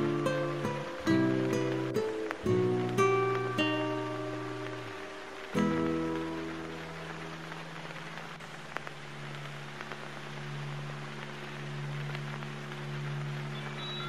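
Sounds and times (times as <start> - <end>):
acoustic guitar chord: 0.0 - 7.2
crackling hiss: 0.0 - 14.0.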